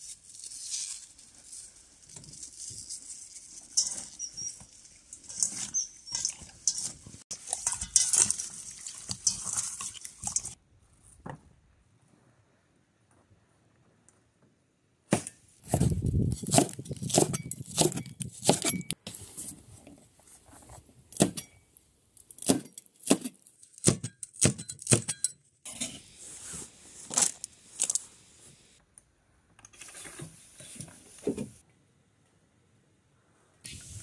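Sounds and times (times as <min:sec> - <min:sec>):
metal bowls and utensils clinking: 0:02.3 - 0:10.6, 0:15.7 - 0:19.0.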